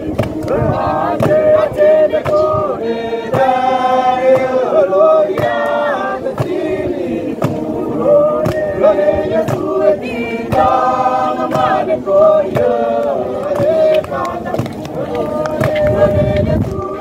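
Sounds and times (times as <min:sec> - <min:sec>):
group singing a chant: 0:00.0 - 0:17.0
sharp percussive strikes: 0:09.4 - 0:09.9.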